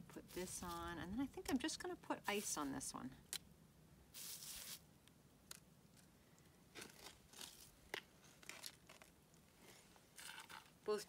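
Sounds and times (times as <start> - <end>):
handling crunches and crackles: 5.5 - 10.8.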